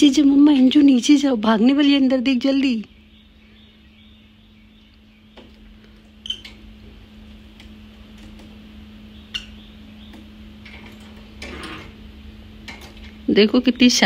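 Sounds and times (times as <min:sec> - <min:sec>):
steady low hum: 0:00.0 - 0:14.0
parrot chirping: 0:06.2 - 0:06.6, 0:09.0 - 0:10.5.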